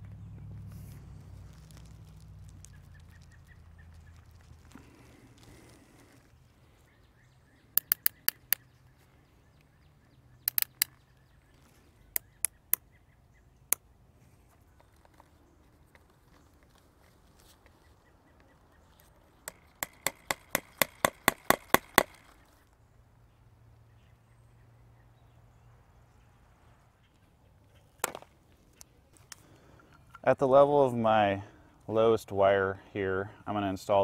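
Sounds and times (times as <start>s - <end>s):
hammer tapping fastener into wood: 7.8s - 8.6s, 10.5s - 10.9s.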